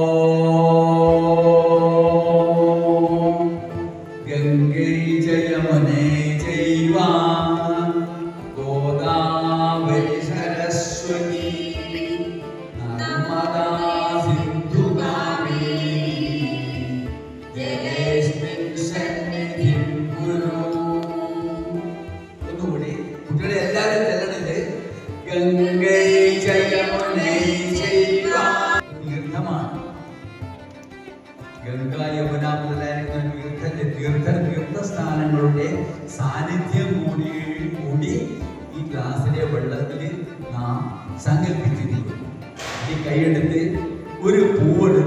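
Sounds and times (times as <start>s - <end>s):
slow devotional chanting: 0.0s - 22.4s, 25.2s - 28.8s.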